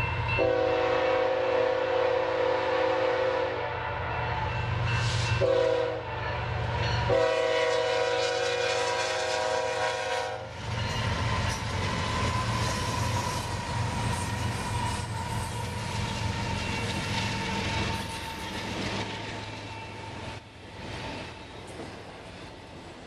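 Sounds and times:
locomotive engines and wheels rumbling: 0.0 - 23.0
locomotive air horn blasts: 0.4 - 4.5, 5.2 - 10.5.

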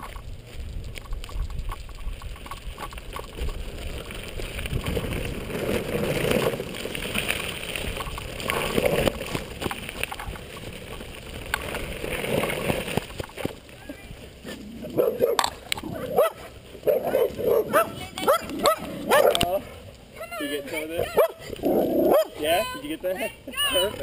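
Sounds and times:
board tyres rolling over gravel: 0.0 - 24.0
stones crunching and knocking: 1.0 - 13.7.

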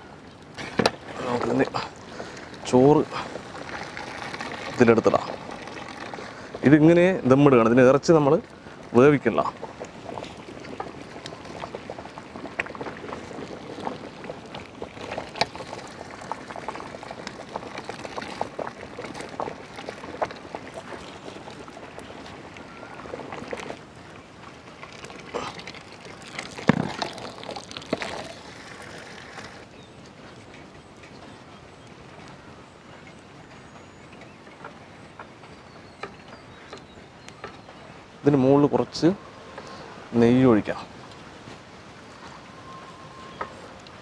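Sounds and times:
water bubbling: 0.0 - 30.0
water pouring and dripping: 0.0 - 32.4.

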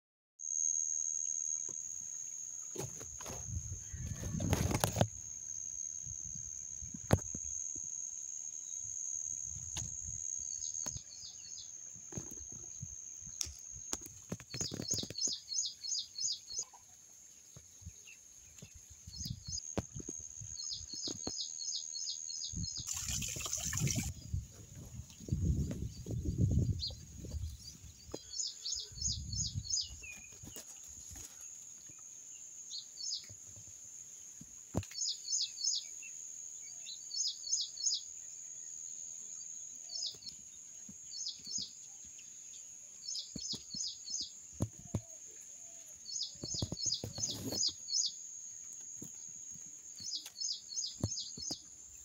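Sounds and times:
bird chirping: 10.2 - 33.3, 34.8 - 52.0
high-pitched insect drone: 22.6 - 24.1
leaves rustling: 29.9 - 32.0.

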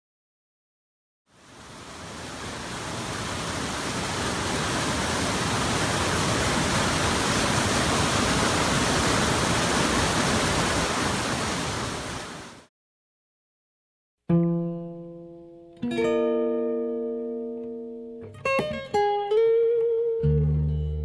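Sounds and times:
water rushing over rocks: 1.3 - 12.7.

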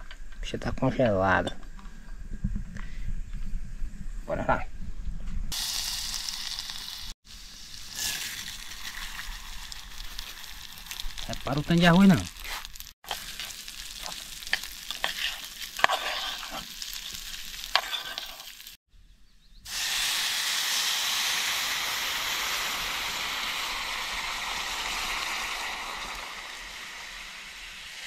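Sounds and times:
rice crackling in hot fat: 5.5 - 18.8, 19.7 - 28.0
water sizzling in hot pot: 5.5 - 18.8, 19.7 - 28.0
spoon stirring in pot: 13.1 - 18.5.

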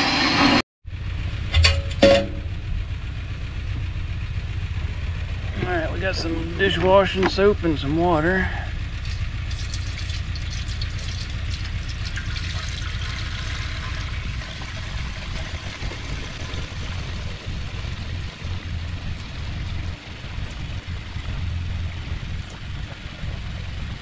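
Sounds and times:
low rumble: 0.0 - 24.0
water pouring into metal tank: 9.0 - 16.5.

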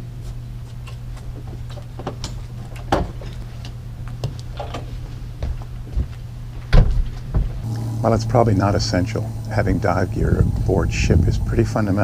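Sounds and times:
steady low hum: 0.0 - 12.0
footsteps on boat deck: 0.2 - 7.6.

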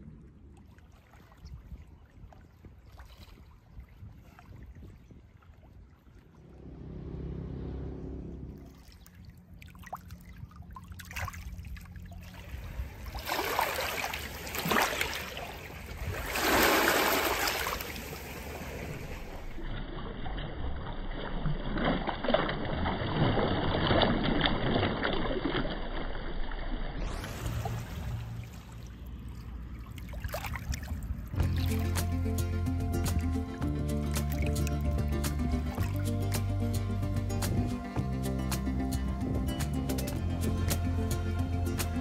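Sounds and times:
water lapping over pebbles: 0.4 - 6.5, 8.6 - 32.0
low hum: 6.1 - 13.0.

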